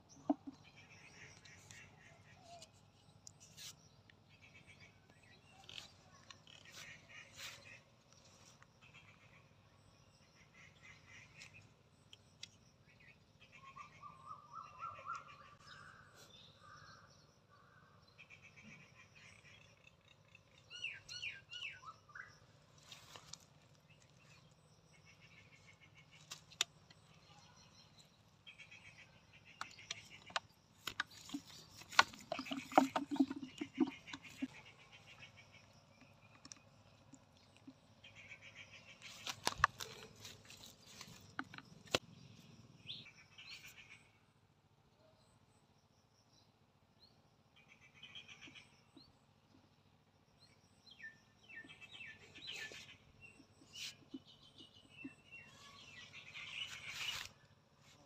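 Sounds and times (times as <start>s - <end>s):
small birds chirping: 0.0s - 44.1s, 46.3s - 58.0s
handling clicks and knocks: 29.6s - 34.5s.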